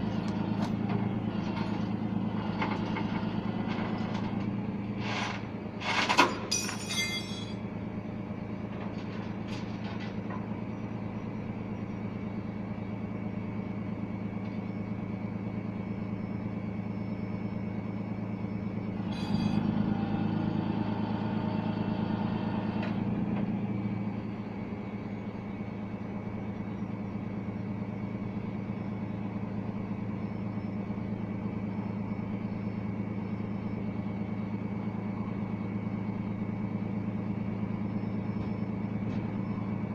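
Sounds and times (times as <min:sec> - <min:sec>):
truck engine running: 0:00.0 - 0:39.9
metallic clanks: 0:05.9 - 0:07.6.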